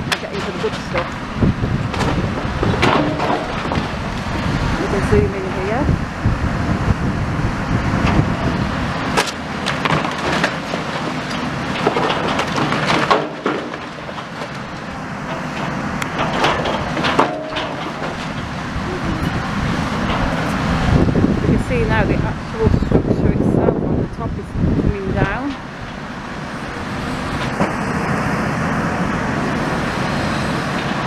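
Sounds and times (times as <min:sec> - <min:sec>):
knocks and clattering of debris: 0:00.0 - 0:01.2, 0:01.8 - 0:04.5, 0:08.0 - 0:18.7
excavator diesel engine: 0:00.0 - 0:31.0.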